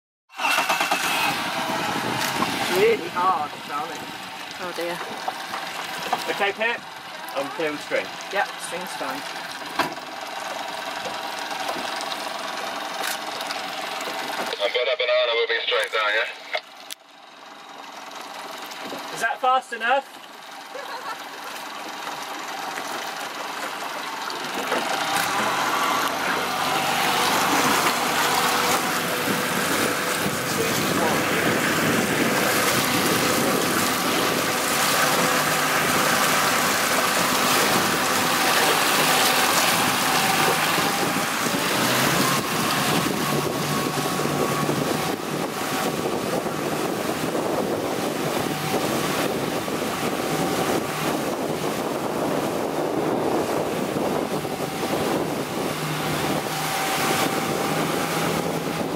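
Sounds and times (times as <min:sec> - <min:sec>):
rushing water: 0:00.3 - 0:17.0, 0:17.6 - 0:58.9
motorboat engine: 0:00.3 - 0:58.9
wind buffeting microphone: 0:01.4 - 0:04.3, 0:24.4 - 0:58.9.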